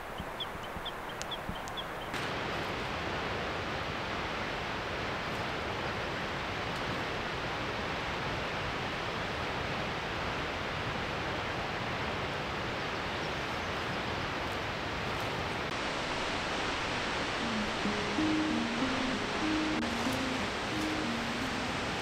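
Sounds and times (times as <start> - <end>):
waterfall rushing: 15.6 - 22.0.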